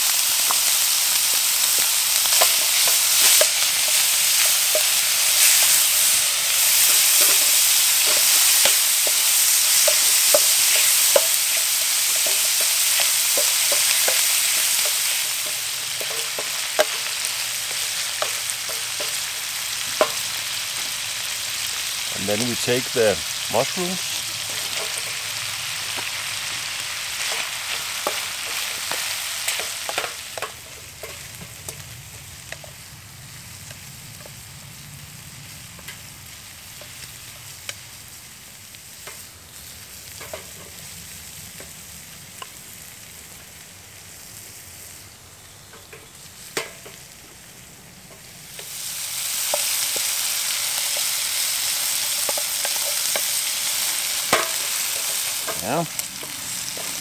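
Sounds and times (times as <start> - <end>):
food sizzling in a frying pan: 0.0 - 57.0
wooden spatula clicking and scraping: 1.3 - 19.2, 49.5 - 57.0.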